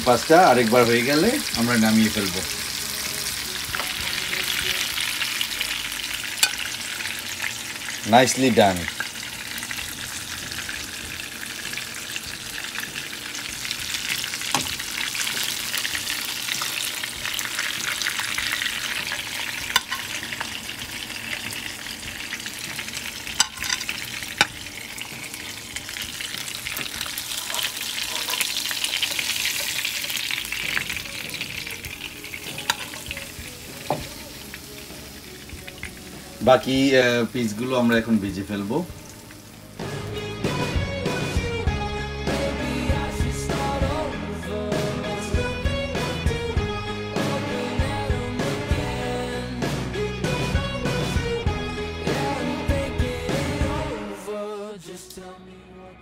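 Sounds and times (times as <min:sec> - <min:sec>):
fish sizzling in a pan: 0:00.0 - 0:41.6.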